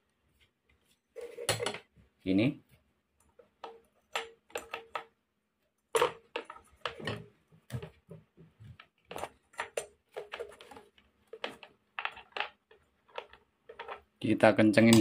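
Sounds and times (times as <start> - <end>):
hard parts clicking in plastic jar: 3.6 - 5.1, 8.8 - 14.2.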